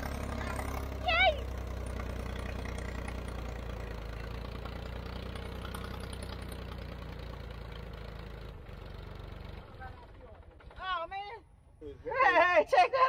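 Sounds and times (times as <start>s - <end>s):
diesel engine running: 0.0s - 11.6s.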